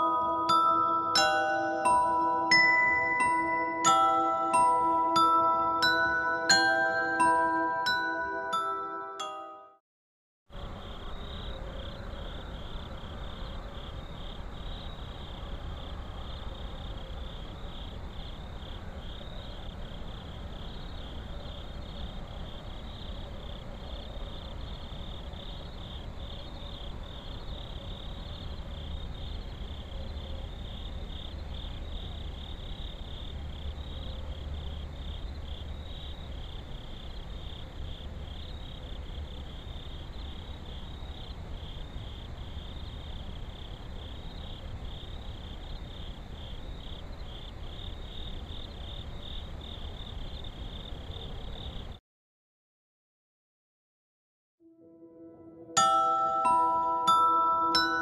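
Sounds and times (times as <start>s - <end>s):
crickets chirping: 10.6s - 52.0s.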